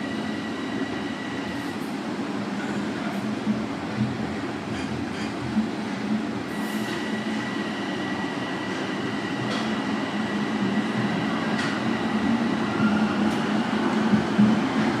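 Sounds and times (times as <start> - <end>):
subway car rumble: 0.0 - 15.0.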